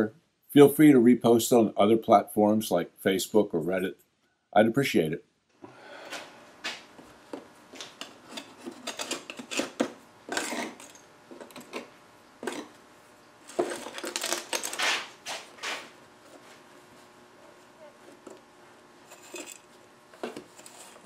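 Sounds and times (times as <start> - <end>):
scraping on workbench: 7.8 - 12.8.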